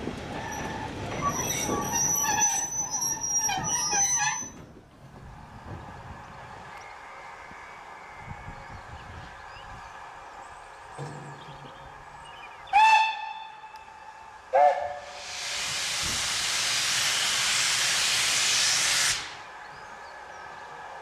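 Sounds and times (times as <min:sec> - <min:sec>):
steam locomotive whistle: 0:12.7 - 0:13.8, 0:14.5 - 0:15.3
steam hissing: 0:14.6 - 0:19.6.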